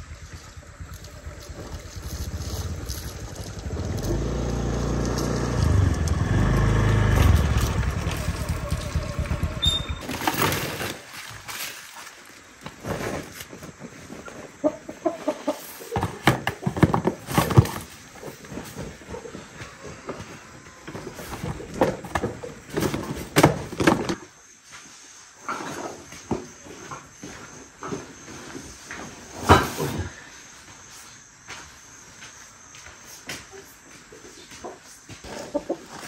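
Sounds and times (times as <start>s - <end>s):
motor scooter engine: 0.0s - 11.0s
chickens clucking: 14.3s - 16.4s, 33.5s - 36.0s.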